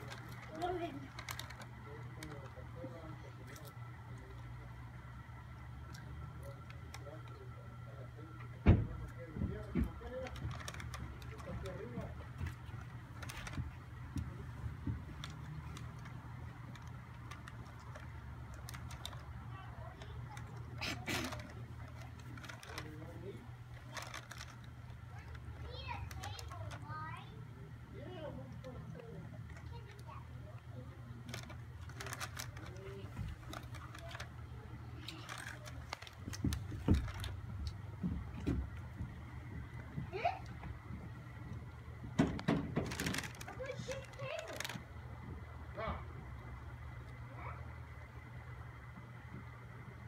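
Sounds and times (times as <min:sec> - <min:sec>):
plastic bag crinkling: 0:00.0 - 0:02.6, 0:10.0 - 0:13.9, 0:14.6 - 0:26.8, 0:31.2 - 0:37.6, 0:42.7 - 0:45.0
dog crunching dry food: 0:00.0 - 0:03.9, 0:09.9 - 0:26.9, 0:31.2 - 0:37.8, 0:42.7 - 0:45.0
low steady rumble: 0:00.0 - 0:50.0.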